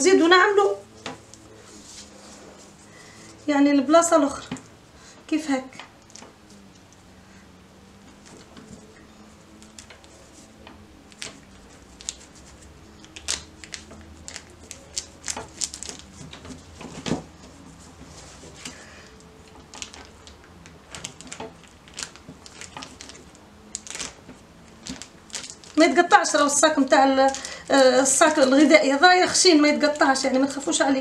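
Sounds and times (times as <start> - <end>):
plastic bag crinkling: 11.1 - 31.0.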